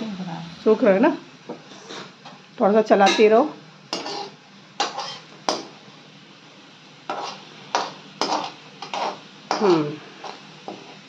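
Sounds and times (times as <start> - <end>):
metal spoon scraping a pan: 3.9 - 5.8, 7.1 - 11.0.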